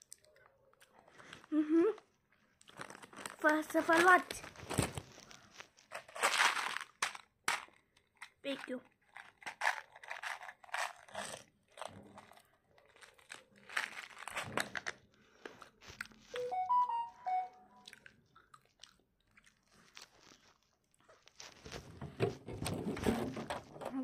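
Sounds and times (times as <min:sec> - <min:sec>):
crunching and chewing: 0:00.0 - 0:16.4, 0:17.8 - 0:21.8
musical notes: 0:16.4 - 0:17.9.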